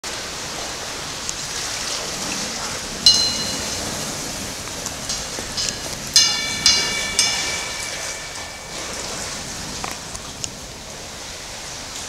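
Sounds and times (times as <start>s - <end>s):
sharp ringing ping: 3.0s - 4.2s, 5.1s - 9.8s.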